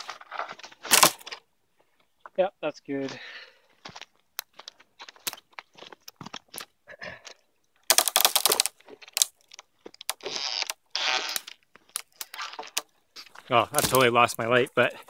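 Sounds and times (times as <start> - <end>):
log cracking and breaking: 0.0 - 1.4, 4.4 - 6.7, 7.7 - 13.0, 13.6 - 14.4
branches rustling: 7.9 - 15.0.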